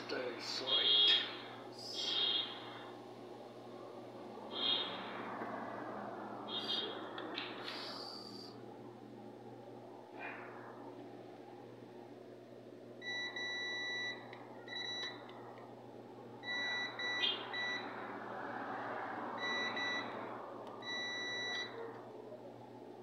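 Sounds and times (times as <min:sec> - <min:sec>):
multimeter continuity beeps: 0:13.0 - 0:15.2, 0:16.4 - 0:17.9, 0:19.4 - 0:20.2, 0:20.8 - 0:21.8.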